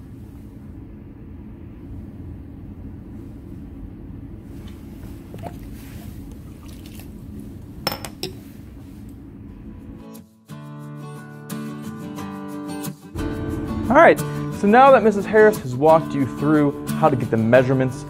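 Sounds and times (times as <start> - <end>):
low room hum: 0.0 - 10.2
glassware clinking: 7.9 - 8.4.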